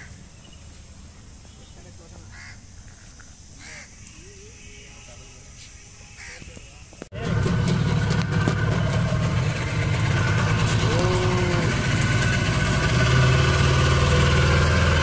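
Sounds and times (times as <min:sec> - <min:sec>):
small boat engine running: 0:07.2 - 0:15.0.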